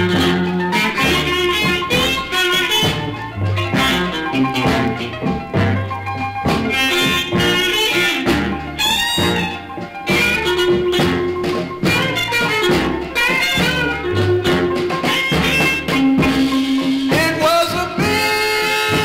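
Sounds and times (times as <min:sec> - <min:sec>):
electric blues record: 0:00.0 - 0:19.0
held horn chords: 0:00.0 - 0:19.0
lead electric guitar bending notes: 0:00.0 - 0:19.0.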